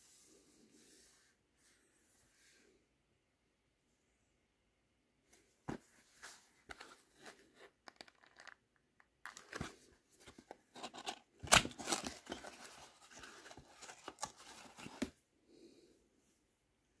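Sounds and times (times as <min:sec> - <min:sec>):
cardboard carton opening: 0:10.3 - 0:15.1.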